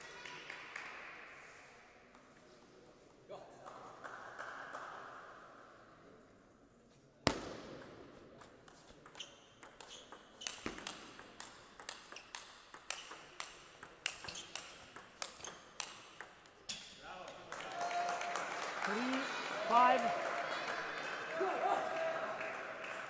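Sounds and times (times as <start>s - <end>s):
table tennis ball knocking: 7.8s - 16.8s.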